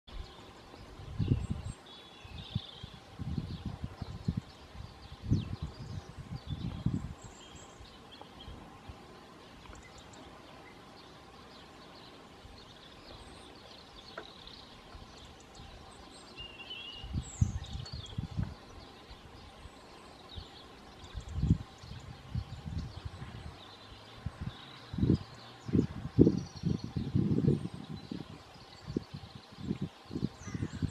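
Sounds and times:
low rumble on microphone: 0.1s - 30.9s
small birds chirping: 0.1s - 30.9s.

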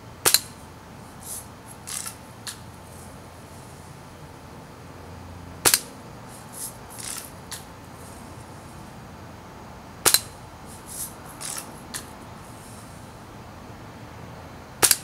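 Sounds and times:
bb gun crack into wax: 5.7s - 5.9s.

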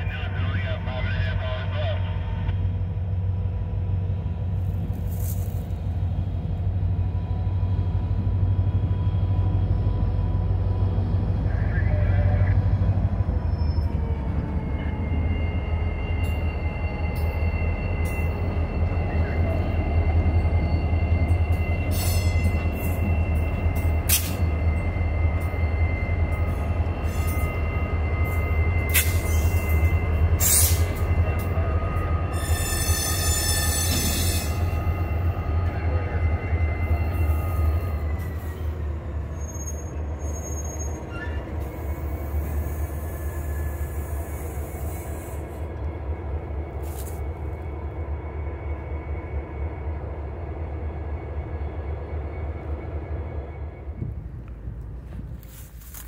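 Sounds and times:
diesel locomotive engine rumble: 0.0s - 56.0s
high-pitched train squeal: 11.4s - 45.6s.

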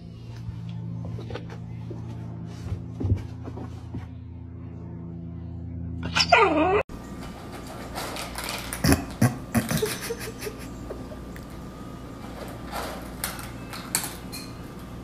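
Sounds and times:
cat crunching dry kibble: 7.5s - 9.2s.

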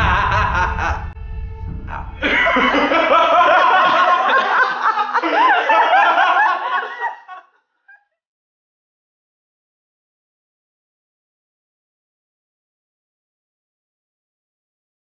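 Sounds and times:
man laughing maniacally: 0.0s - 1.2s, 1.9s - 8.0s.

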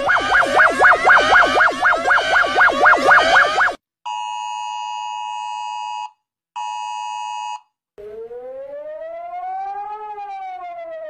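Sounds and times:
siren rising and falling: 0.0s - 3.8s, 8.0s - 11.0s
two-tone alert signal: 0.0s - 3.8s.

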